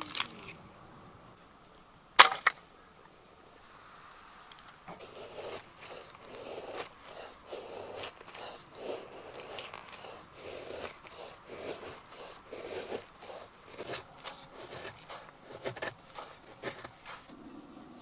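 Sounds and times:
knife shaving wood: 0:04.5 - 0:17.4.

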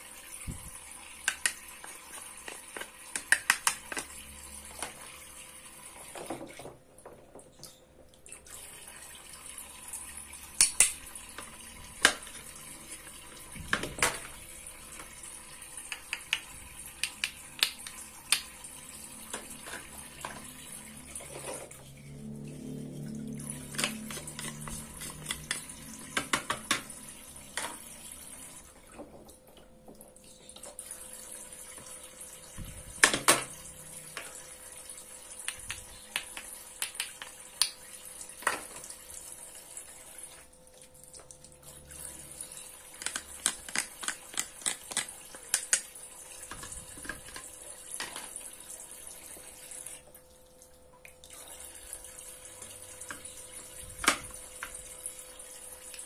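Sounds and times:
faint steady hum: 0:00.0 - 0:56.0
water trickling from faucet: 0:07.4 - 0:56.0
plastic toys clacking: 0:43.0 - 0:45.9.

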